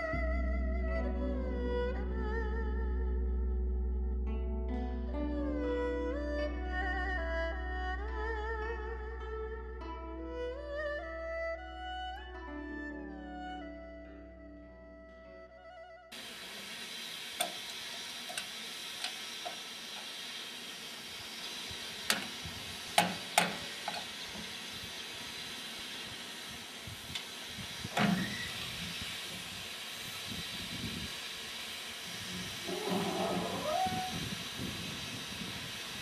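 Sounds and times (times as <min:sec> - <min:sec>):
steam hissing: 0:16.1 - 0:36.0.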